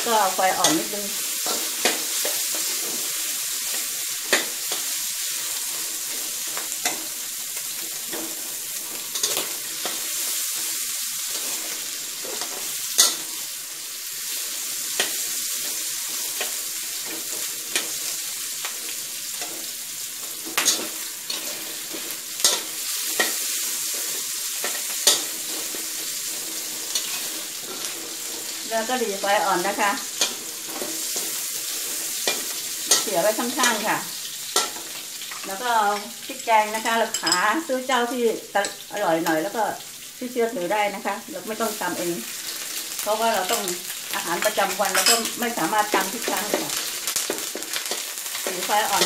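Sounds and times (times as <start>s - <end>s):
pork sizzling in a wok: 0.0s - 49.0s
metal spatula scraping a wok: 0.2s - 35.6s
spatula clinking against wok: 34.6s - 35.4s.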